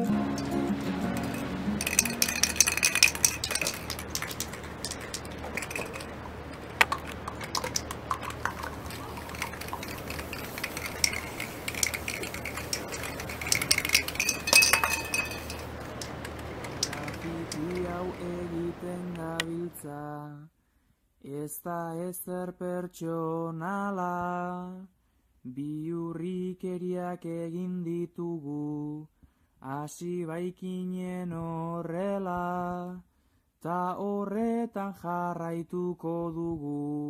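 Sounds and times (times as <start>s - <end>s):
spray paint cans rattling: 0.0s - 19.8s.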